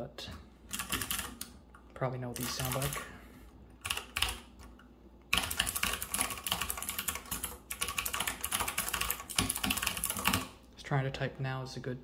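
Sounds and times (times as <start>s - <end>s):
mechanical keyboard typing: 0.7s - 1.6s, 2.4s - 3.0s, 3.8s - 4.7s, 5.3s - 10.5s.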